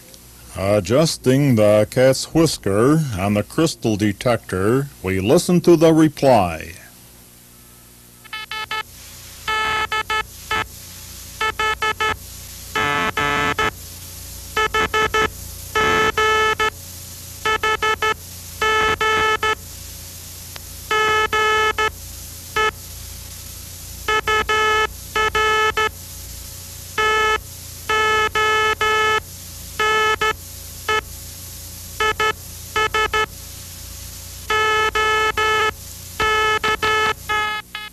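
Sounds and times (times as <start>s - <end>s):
low hum and hiss: 0.0s - 37.9s
morse code buzzy tone: 8.2s - 10.7s, 11.4s - 13.8s, 14.5s - 16.8s, 17.4s - 19.6s, 20.9s - 22.8s, 24.0s - 26.0s, 27.0s - 31.1s, 32.0s - 33.3s, 34.4s - 37.9s.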